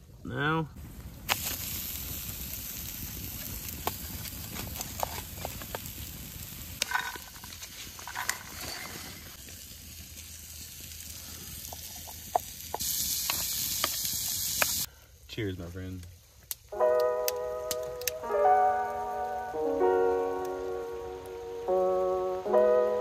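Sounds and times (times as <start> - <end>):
steak sizzling over coals: 0.4 - 23.0
pops and crackles: 1.0 - 8.6, 9.3 - 14.9, 16.0 - 18.4.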